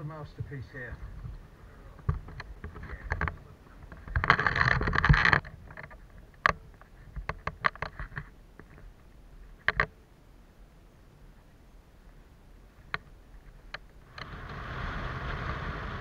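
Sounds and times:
sharp clicks and knocks: 2.0 - 8.9, 9.6 - 10.0
rustling scrape: 2.6 - 6.2.

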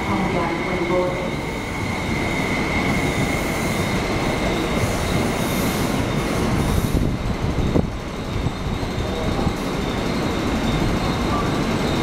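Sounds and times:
high train whine: 0.0 - 12.0
train wheels rumbling on rail: 0.0 - 12.0.

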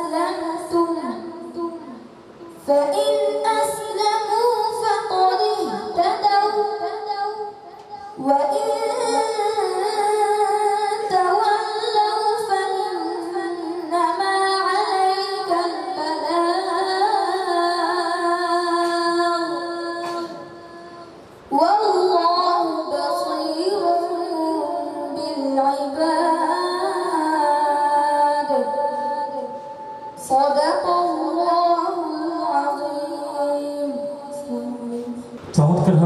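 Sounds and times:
boy chanting into a microphone: 0.0 - 36.0.

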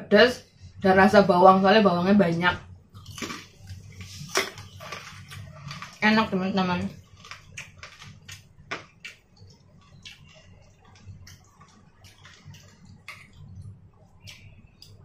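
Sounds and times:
chewing: 2.9 - 6.0, 7.0 - 15.0.

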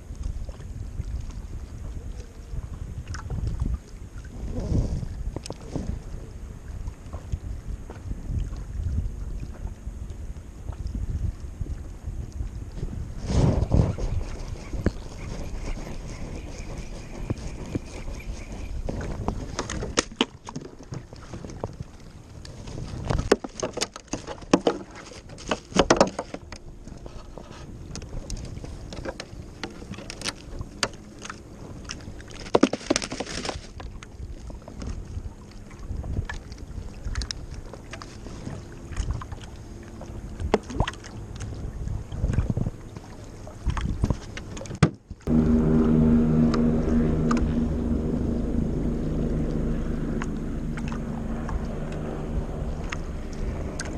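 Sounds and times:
low hum with held tones: 0.0 - 23.3, 33.6 - 53.9
fishing gear knocks and rustles: 22.7 - 31.0, 32.0 - 33.9.

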